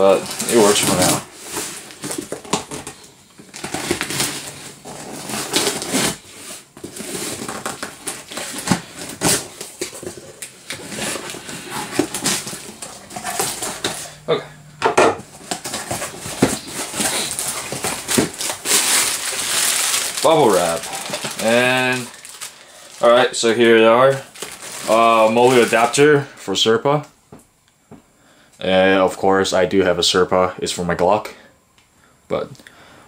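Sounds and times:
cardboard flaps rustling: 0.2 - 14.2, 15.3 - 22.5.

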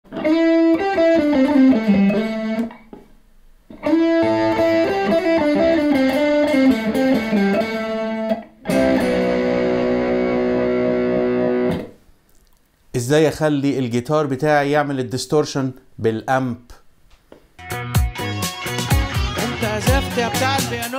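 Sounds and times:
distorted electric guitar: 0.1 - 3.0, 3.7 - 12.0, 17.6 - 20.9.

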